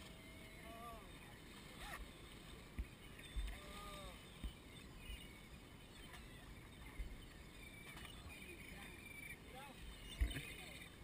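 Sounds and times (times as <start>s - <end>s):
seabird cries: 0.0s - 2.3s, 3.1s - 6.8s.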